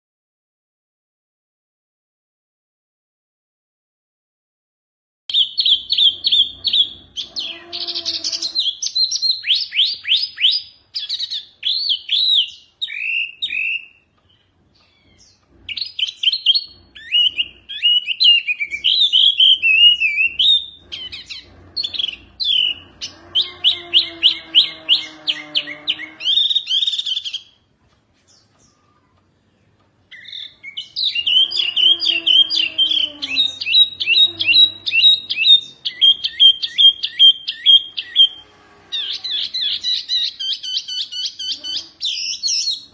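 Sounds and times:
songbird whistling and trilling: 5.3s - 14.0s, 14.8s - 27.6s, 30.1s - 38.4s, 39.0s - 42.9s.

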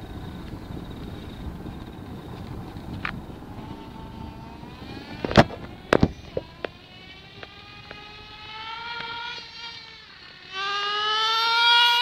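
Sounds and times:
toy car motor whining: 3.5s - 12.0s.

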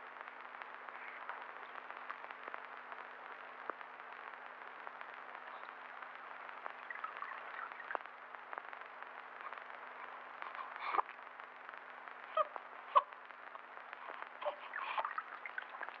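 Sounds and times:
clicks and crackles: 0.0s - 16.0s
film soundtrack hiss and hum: 0.0s - 16.0s.

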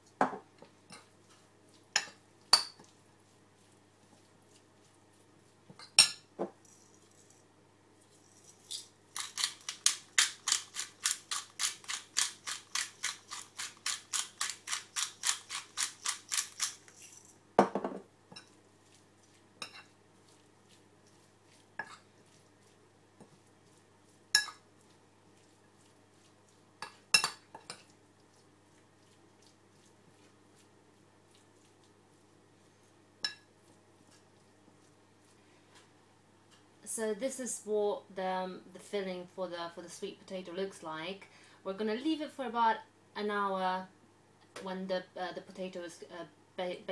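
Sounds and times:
metal spoon clinking ceramic bowl: 24.4s - 24.6s.

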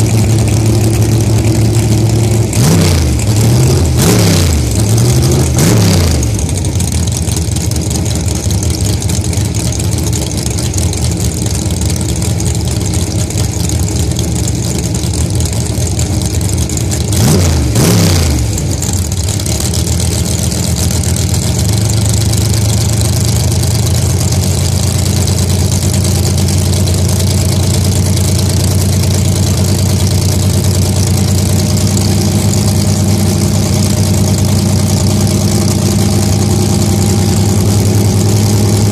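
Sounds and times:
engine revving: 0.0s - 7.2s, 16.9s - 24.4s, 29.4s - 38.9s
dragster engines idling: 0.0s - 38.9s.

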